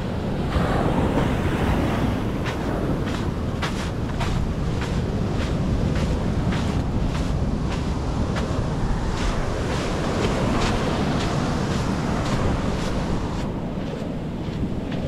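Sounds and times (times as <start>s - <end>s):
waves washing onto beach: 0.0s - 15.0s
wind buffeting microphone: 0.0s - 15.0s
footsteps on beach: 0.3s - 15.0s.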